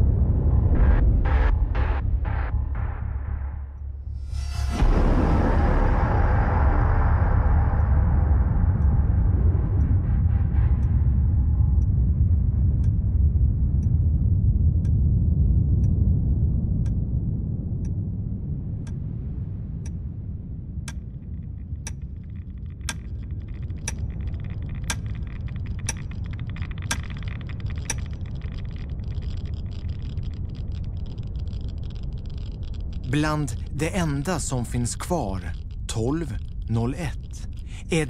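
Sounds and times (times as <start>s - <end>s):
deep explosion rumble: 0.0s - 38.0s
clock ticking: 7.6s - 11.2s, 11.8s - 13.0s, 20.8s - 38.0s.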